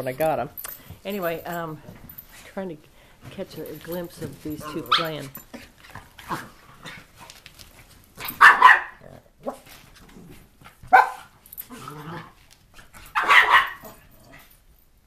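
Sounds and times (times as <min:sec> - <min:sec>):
small dogs barking: 0:04.5 - 0:05.5, 0:08.2 - 0:09.7, 0:10.9 - 0:12.3, 0:13.1 - 0:14.1.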